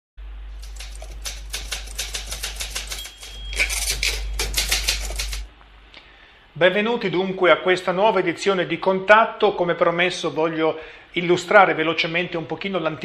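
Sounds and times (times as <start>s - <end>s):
low steady hum: 0.2s - 13.0s
fast mechanical clicks: 0.6s - 5.5s.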